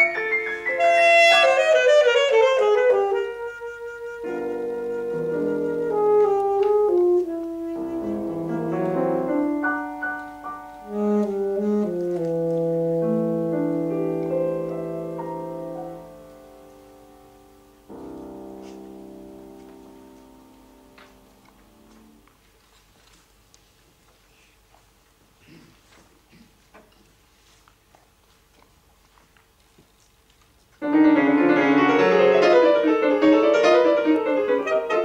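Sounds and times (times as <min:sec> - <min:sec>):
saxophone: 0:00.0 - 0:15.2, 0:31.8 - 0:35.0
piano chords: 0:00.0 - 0:22.2, 0:30.8 - 0:35.0.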